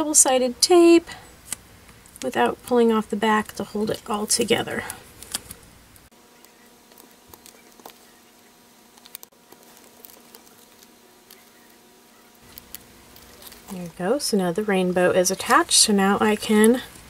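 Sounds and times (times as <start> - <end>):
faint steady hum: 0.0 - 17.0
fingers pressing tape on paper: 9.0 - 11.8.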